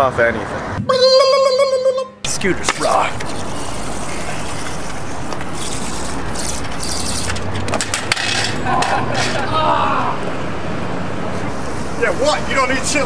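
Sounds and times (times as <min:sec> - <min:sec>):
street noise: 0:00.0 - 0:13.0
scooter rolling on pavement: 0:02.3 - 0:09.5.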